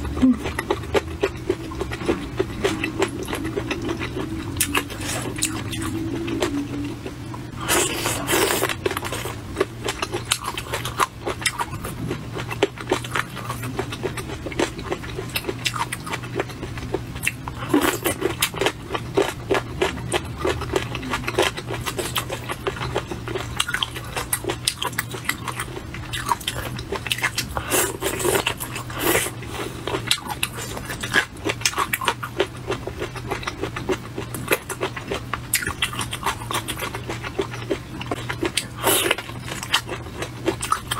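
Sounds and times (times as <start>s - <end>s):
low steady hum: 0.0s - 40.9s.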